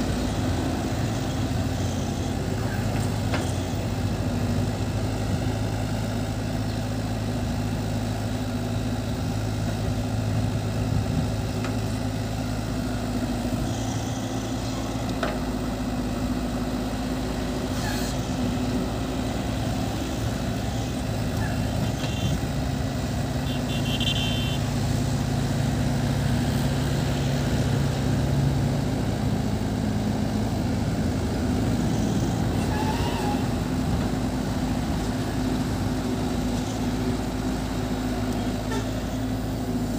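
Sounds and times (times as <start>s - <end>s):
excavator diesel engine running: 0.0s - 39.9s.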